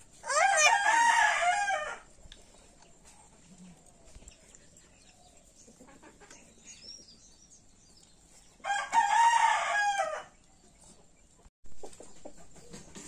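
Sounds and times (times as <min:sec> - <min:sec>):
rooster crowing: 0:00.2 - 0:02.1, 0:08.6 - 0:10.4.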